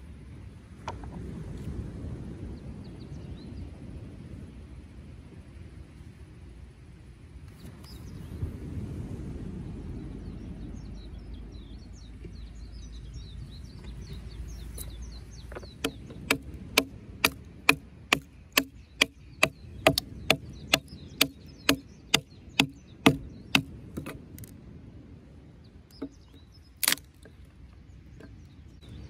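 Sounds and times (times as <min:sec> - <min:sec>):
low wind rumble: 0:00.0 - 0:29.0
small birds chirping: 0:07.5 - 0:08.6, 0:09.6 - 0:24.6, 0:25.4 - 0:29.0
wood splitting: 0:15.8 - 0:24.5, 0:26.8 - 0:27.4.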